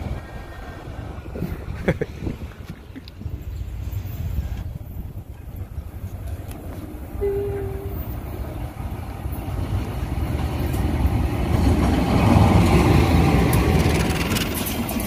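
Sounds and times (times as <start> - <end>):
locomotive engine rumble: 0.0 - 15.0
train wheel noise: 0.0 - 15.0
train horn toot: 7.2 - 8.2.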